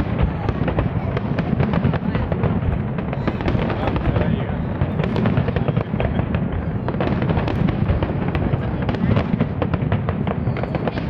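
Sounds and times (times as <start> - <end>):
fireworks crackling pops: 0.0 - 11.0
low rumble of explosions: 0.0 - 11.0.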